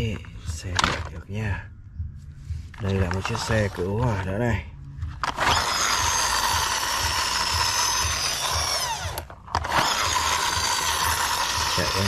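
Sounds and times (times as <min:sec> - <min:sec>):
toy flywheel whirring: 0:05.2 - 0:12.0.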